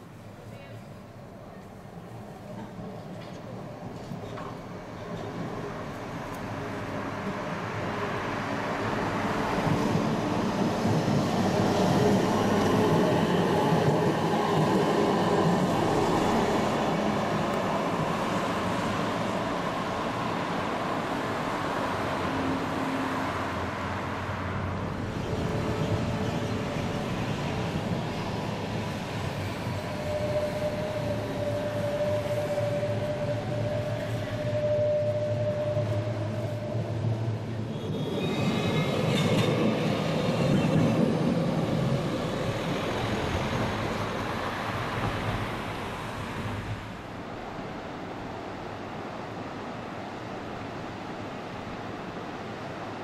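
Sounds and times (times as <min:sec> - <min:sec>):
tram wheels rumbling: 0:01.5 - 0:48.4
tram motor whine: 0:25.1 - 0:45.6.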